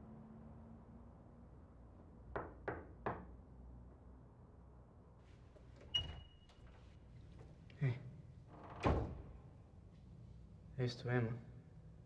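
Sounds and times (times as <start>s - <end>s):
knocking on door: 2.4s - 3.3s.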